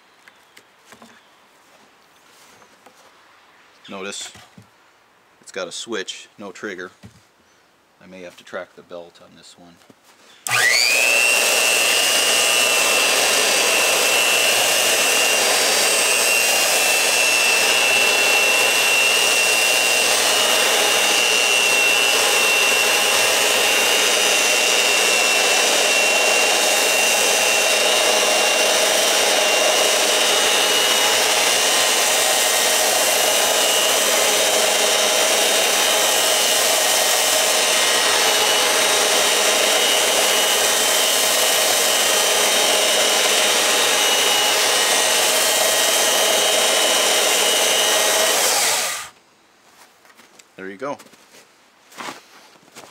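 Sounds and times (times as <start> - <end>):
belt sander whining: 10.4 - 49.2.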